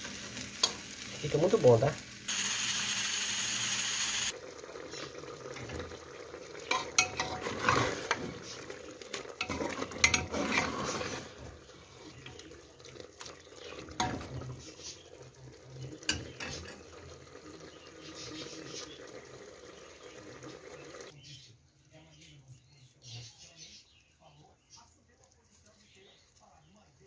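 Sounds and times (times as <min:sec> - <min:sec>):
sauce sizzling faintly: 0:00.0 - 0:21.2
pressure cooker valve hissing: 0:02.2 - 0:04.4
metal spoon scraping a pot: 0:06.7 - 0:12.3.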